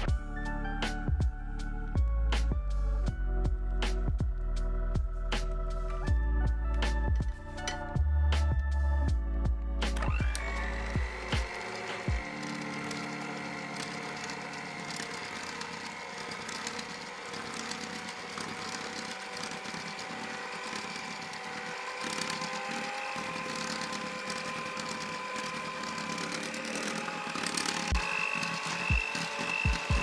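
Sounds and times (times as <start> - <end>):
electric hand mixer whining: 9.9 - 30.0.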